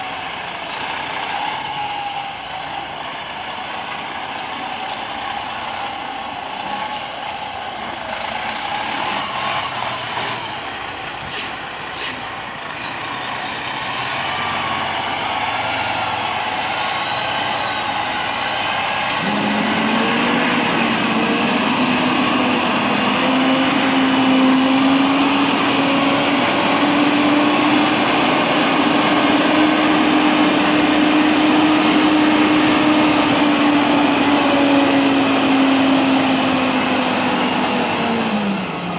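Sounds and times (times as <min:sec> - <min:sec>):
truck engine running: 0:00.0 - 0:38.9
engine drone rising in pitch: 0:12.6 - 0:38.9.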